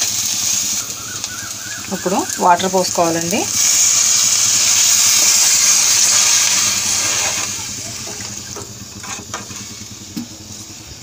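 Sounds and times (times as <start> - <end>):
water hissing in hot pan: 0.0 - 11.0.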